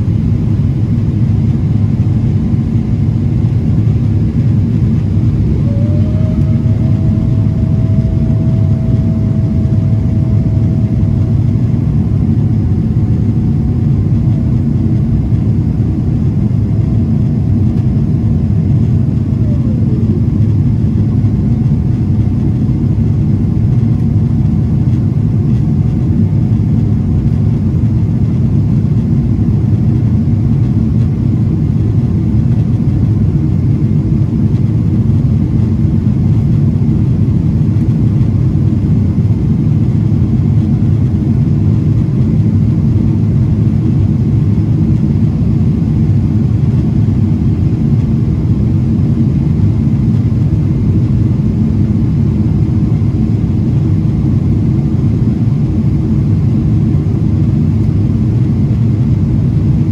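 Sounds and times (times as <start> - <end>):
thin whine: 0.0 - 31.2
jet engine rumble in cabin: 0.0 - 59.9.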